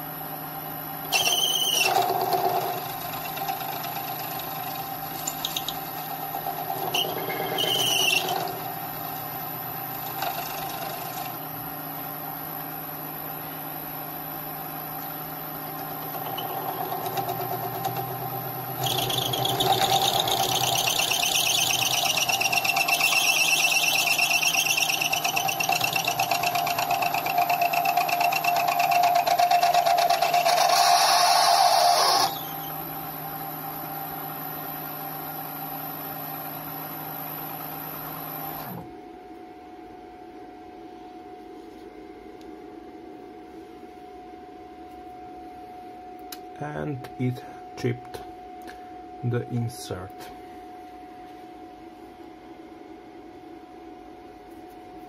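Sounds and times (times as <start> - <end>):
lathe motor whine: 0.0 - 39.4
motor spinning down: 1.0 - 11.6, 15.7 - 38.9
high screeching metal cut: 1.1 - 8.8, 18.7 - 32.8.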